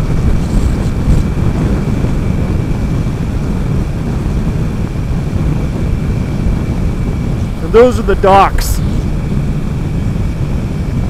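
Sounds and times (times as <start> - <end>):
motorcycle engine rumble: 0.0 - 11.0
wind rushing over microphone: 0.0 - 11.0.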